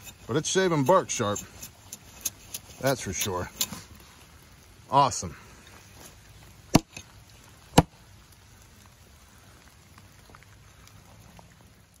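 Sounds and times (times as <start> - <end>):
rain ticks: 0.0 - 12.0
axe chopping a wet log: 6.7 - 7.0, 7.7 - 8.0.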